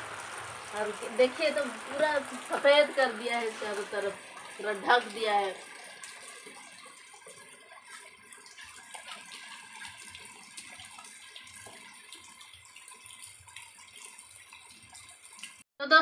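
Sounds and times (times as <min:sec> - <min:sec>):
heavy rain hissing: 0:00.0 - 0:05.5.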